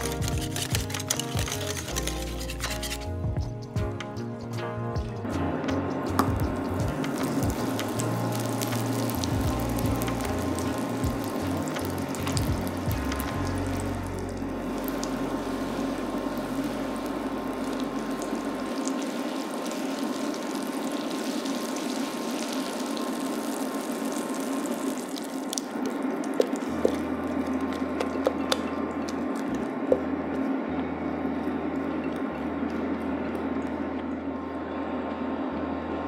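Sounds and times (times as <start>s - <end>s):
batter poured and scraped: 0.0s - 3.2s
butter sizzling in skillet: 6.9s - 25.5s.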